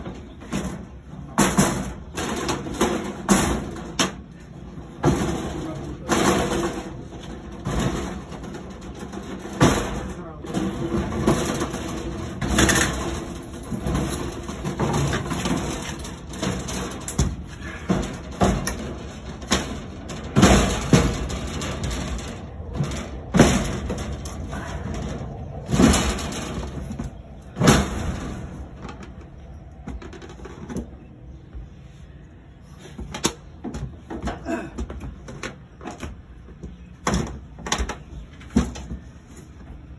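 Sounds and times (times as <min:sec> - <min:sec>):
metal clanks and knocks: 0:00.0 - 0:31.7.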